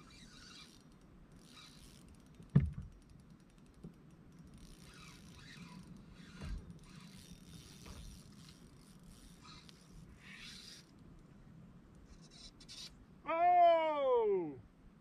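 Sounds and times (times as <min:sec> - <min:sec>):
fishing reel clicking: 0:00.0 - 0:11.2
small tick: 0:00.8 - 0:04.9.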